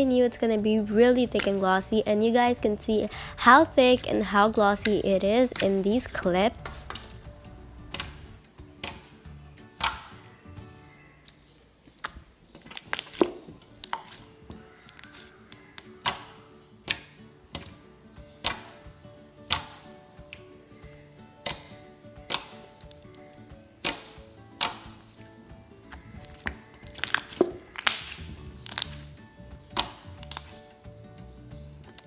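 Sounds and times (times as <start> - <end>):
soft background music: 0.0 - 32.0
slime clicks and pops: 7.9 - 8.2, 9.8 - 10.1, 12.0 - 14.2, 16.0 - 17.8, 23.8 - 24.9, 26.2 - 29.0, 29.7 - 30.5.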